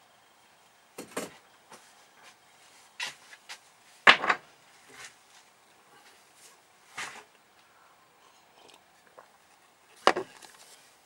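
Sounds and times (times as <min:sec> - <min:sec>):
objects knocking on a workbench: 0:04.1 - 0:04.4.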